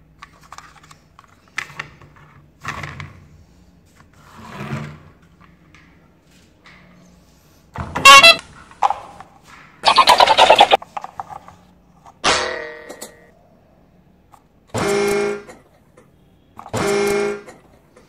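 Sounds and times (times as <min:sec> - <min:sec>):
toy train horn toots: 0:08.0 - 0:08.4, 0:14.8 - 0:15.5, 0:16.3 - 0:17.6
short electronic tone: 0:08.1 - 0:08.4.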